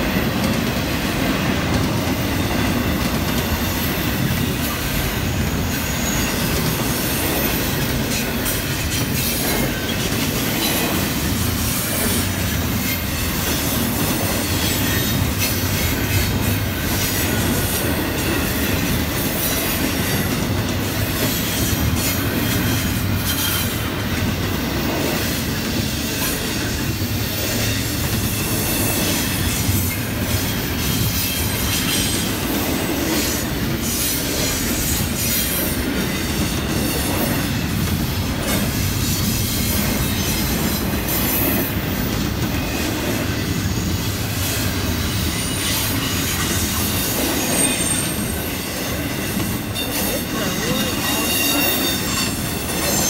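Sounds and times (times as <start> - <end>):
train wheels on rails: 0.0 - 53.0.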